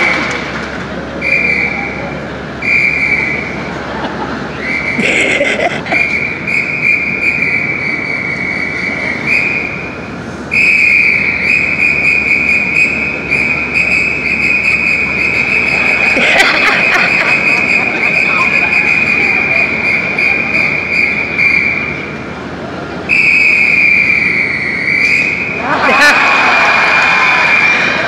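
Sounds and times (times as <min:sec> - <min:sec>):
whistle blowing high notes: 0:01.2 - 0:02.0, 0:02.6 - 0:03.5, 0:04.6 - 0:05.0, 0:06.0 - 0:22.1, 0:23.1 - 0:25.6.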